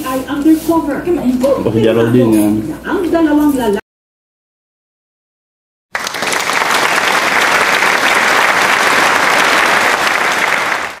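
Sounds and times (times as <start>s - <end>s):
crowd applauding: 5.9s - 11.0s.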